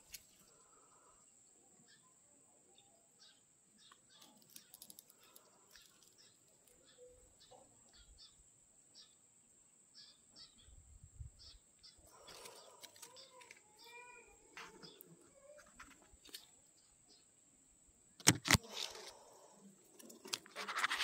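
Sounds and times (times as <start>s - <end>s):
soft ticks and crackles: 4.1s - 6.9s.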